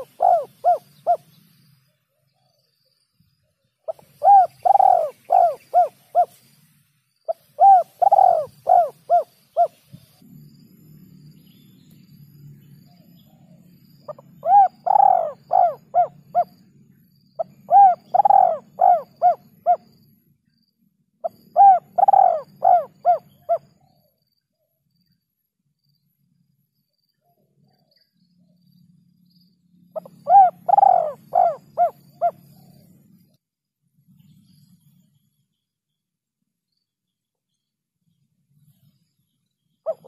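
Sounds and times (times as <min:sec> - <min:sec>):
dove cooing: 0:00.0 - 0:01.3, 0:03.9 - 0:06.4, 0:07.3 - 0:09.8, 0:14.0 - 0:16.6, 0:17.4 - 0:19.9, 0:21.2 - 0:24.0, 0:30.0 - 0:33.0.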